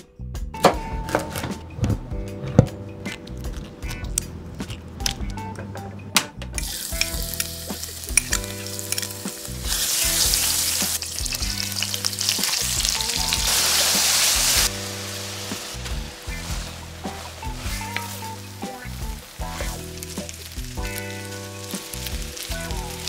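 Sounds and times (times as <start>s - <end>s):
food sizzling in hot oil: 6.6s - 23.0s
wooden spatula stirring in pan: 10.9s - 23.0s.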